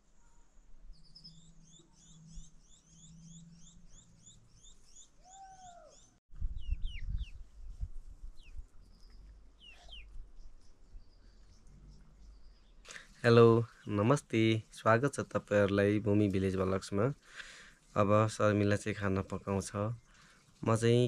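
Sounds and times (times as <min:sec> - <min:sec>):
songbird rapid chirping: 0:00.0 - 0:21.0
single bird chirps: 0:08.4 - 0:10.1.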